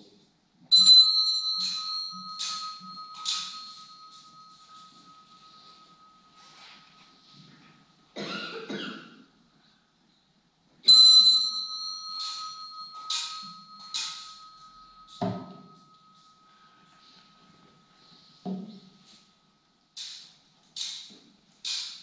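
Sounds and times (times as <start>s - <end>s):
altar bell ringing: 0.7s - 8.2s, 10.8s - 19.7s.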